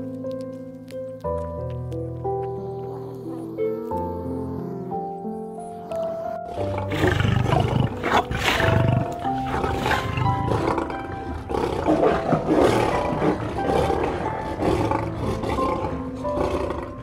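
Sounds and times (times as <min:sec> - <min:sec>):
background music: 0:00.0 - 0:17.0
large animal roaring: 0:06.5 - 0:17.0.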